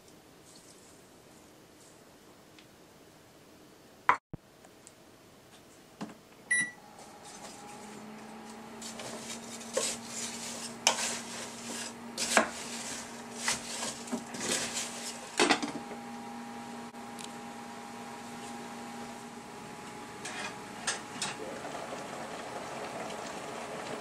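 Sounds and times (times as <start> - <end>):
cooktop humming: 6.0 - 24.0
cooktop beep: 6.5 - 6.8
spatula knocking and scraping pot: 8.8 - 15.2.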